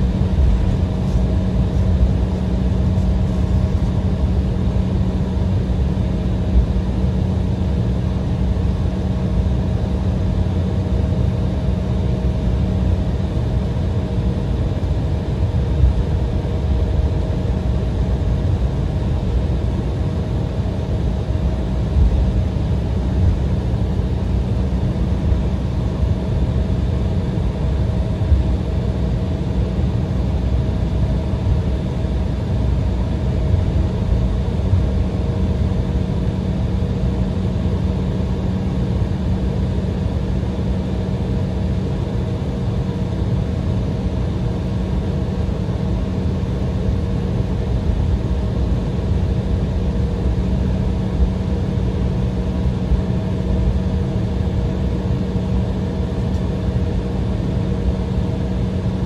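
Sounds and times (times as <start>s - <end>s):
aircraft cabin rumble: 0.0s - 59.0s.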